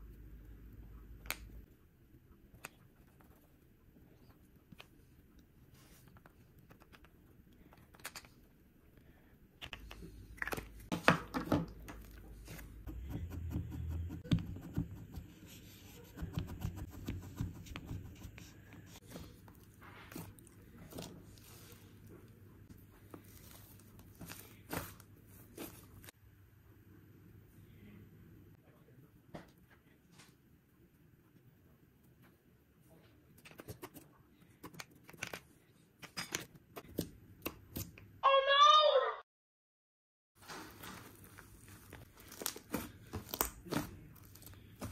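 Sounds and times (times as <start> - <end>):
slime being squished: 40.5 - 44.9.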